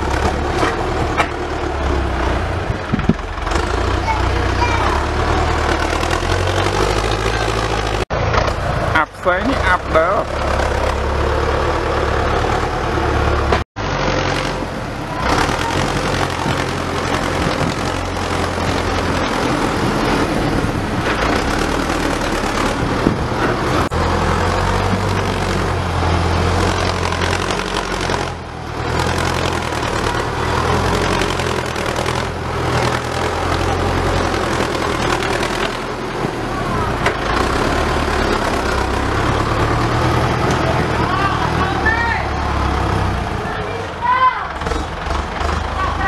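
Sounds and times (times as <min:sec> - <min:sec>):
tractor engine running: 0:00.0 - 0:46.0.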